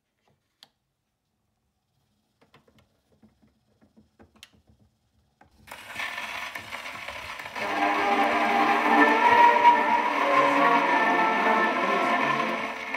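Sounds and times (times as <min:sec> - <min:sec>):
gramophone music: 0:07.6 - 0:12.9.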